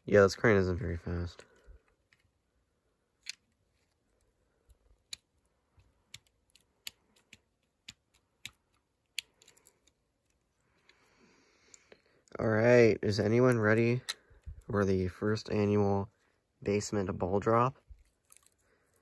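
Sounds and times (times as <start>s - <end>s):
plastic toy parts clicking: 3.2s - 3.9s, 4.7s - 11.0s, 17.9s - 19.0s.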